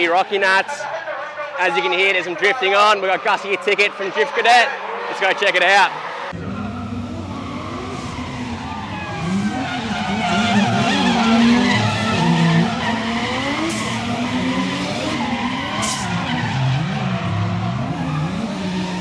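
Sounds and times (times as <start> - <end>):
car engines revving: 0.9 - 19.0
tyres squealing: 6.0 - 19.0.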